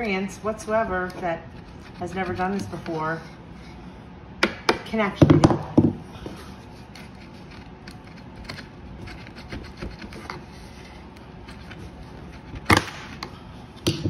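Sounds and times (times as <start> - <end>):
sharp wood crack: 12.6 - 13.2.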